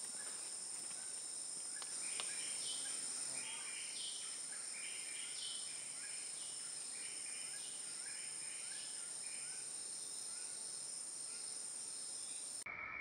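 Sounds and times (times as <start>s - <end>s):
birds calling: 0.0s - 9.0s
high-pitched insect chorus: 0.0s - 13.0s.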